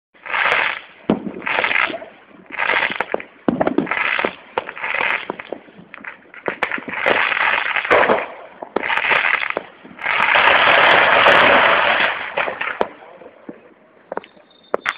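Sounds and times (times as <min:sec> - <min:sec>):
fireworks bangs: 0:00.2 - 0:14.9
fireworks crackling: 0:00.2 - 0:14.9.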